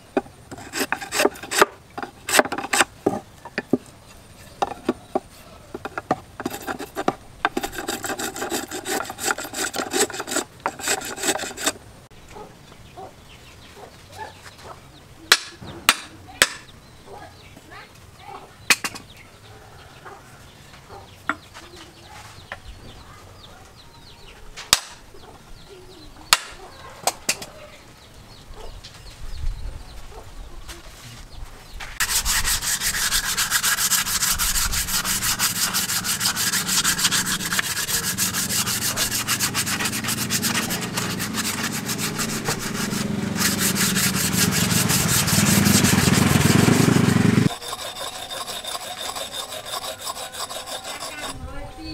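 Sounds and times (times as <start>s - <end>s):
sandpaper rasping on wood: 0.5s - 2.8s, 6.4s - 11.8s, 32.0s - 51.4s.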